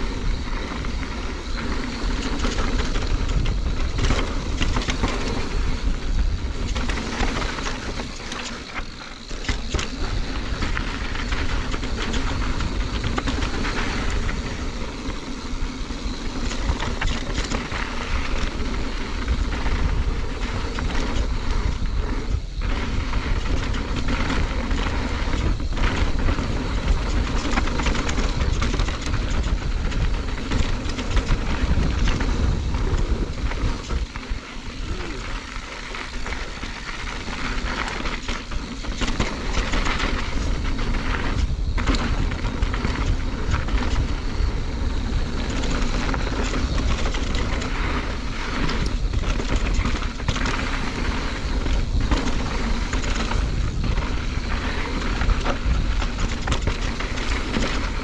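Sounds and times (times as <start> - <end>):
bike clattering over bumps: 0.0 - 58.0
tyres rolling on dirt: 0.0 - 58.0
wind buffeting microphone: 0.0 - 58.0.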